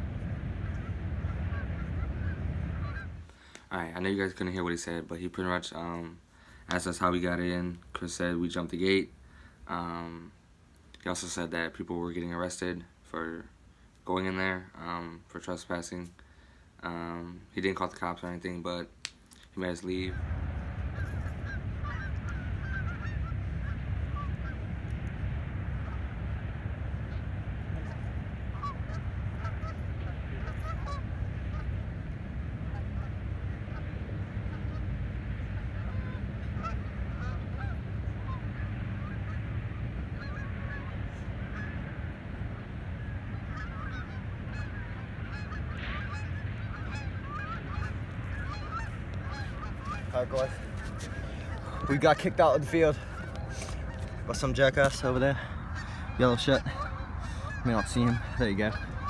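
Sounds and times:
wind rumble on microphone: 0.0s - 3.3s, 19.8s - 59.0s
geese honking: 0.0s - 3.6s, 19.6s - 59.0s.

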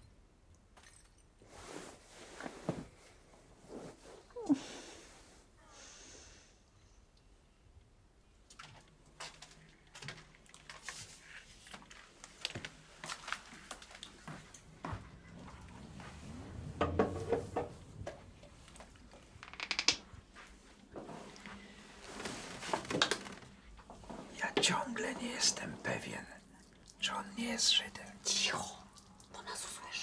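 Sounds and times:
bedding and clothes rustling: 1.3s - 5.6s, 8.3s - 19.4s, 20.0s - 30.0s
soft footsteps: 9.1s - 19.4s, 20.0s - 25.8s.

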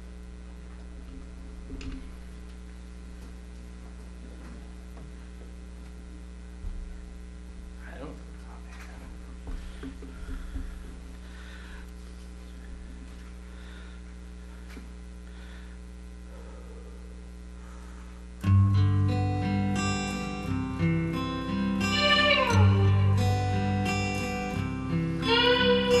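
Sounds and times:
electrical hum: 0.0s - 26.0s
instrumental track with bass: 18.5s - 26.0s.

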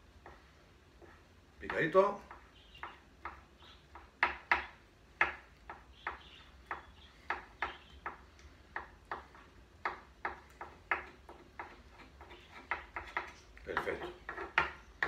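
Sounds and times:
knife chopping on plastic board: 0.2s - 15.0s.

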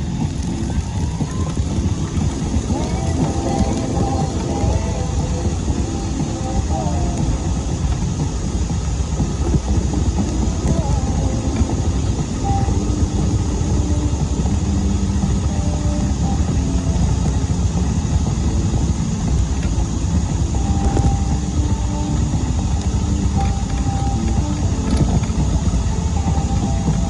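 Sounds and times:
wheelchair tyres rumbling on asphalt: 0.0s - 27.0s
wind on microphone: 0.0s - 27.0s.

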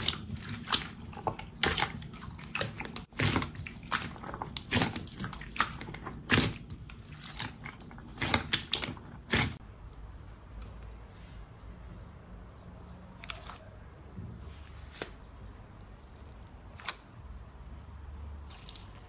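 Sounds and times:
slime squelching and popping: 0.0s - 9.6s.

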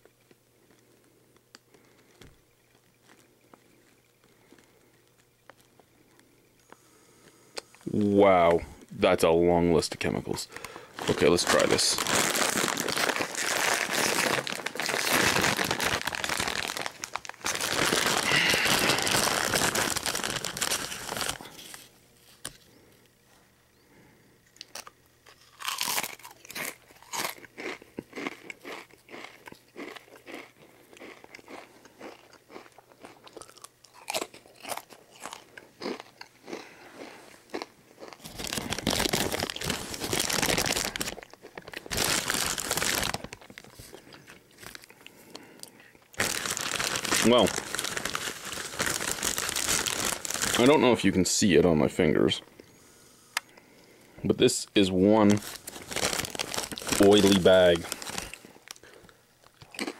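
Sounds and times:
foil chip bag crinkling: 9.8s - 22.9s, 24.6s - 51.5s, 54.8s - 59.9s
potato chips crunching: 10.4s - 22.6s, 24.6s - 51.0s, 55.2s - 59.9s.

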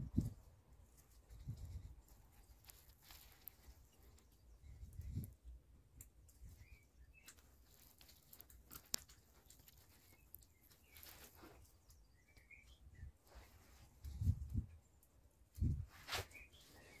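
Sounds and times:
faint ticks and clicks: 0.2s - 12.8s
distant bird chirps: 6.3s - 14.2s.

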